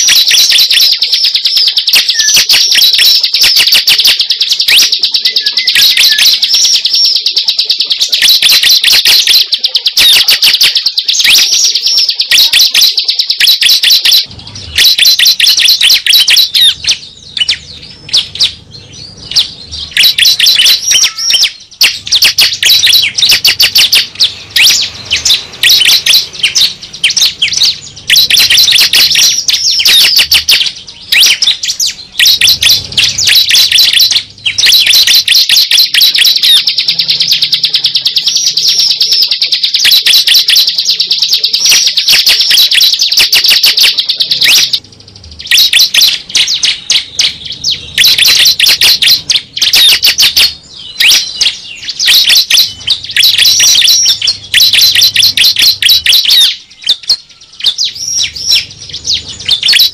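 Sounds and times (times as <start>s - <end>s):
bird giving fast sharp chirps: 0.0s - 59.9s.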